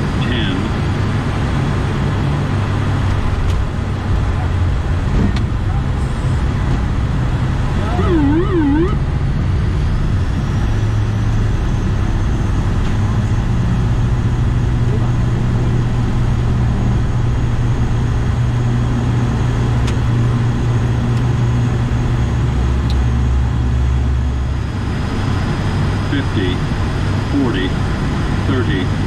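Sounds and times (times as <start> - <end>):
runway rumble: 0.0 - 29.0
turboprop engines droning: 0.0 - 29.0
warbling tone: 7.8 - 9.0.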